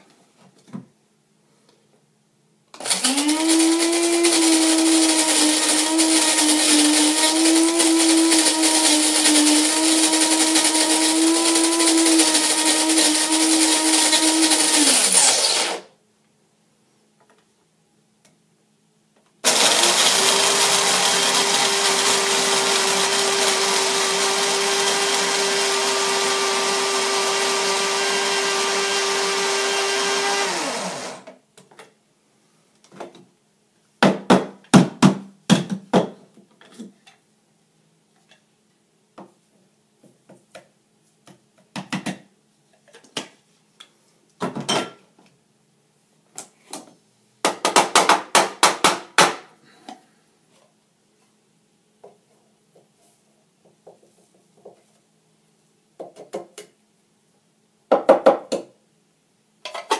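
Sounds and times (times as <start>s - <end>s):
coffee grinder motor grinding beans: 2.8s - 15.9s, 19.4s - 31.3s.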